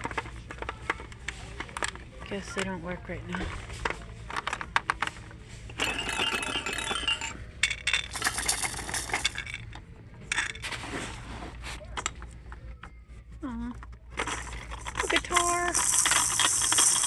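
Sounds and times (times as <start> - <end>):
bead rattle toy shaking: 14.2 - 17.0.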